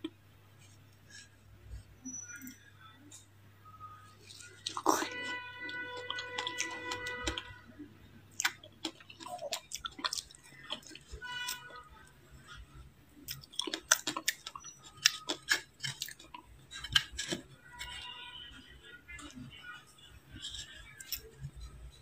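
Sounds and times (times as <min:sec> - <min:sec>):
crunching and chewing ice: 0:04.1 - 0:07.7, 0:08.3 - 0:22.0.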